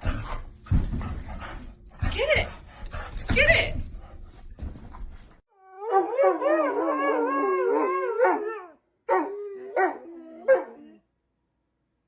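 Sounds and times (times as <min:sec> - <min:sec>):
dog howling: 0:05.5 - 0:11.0.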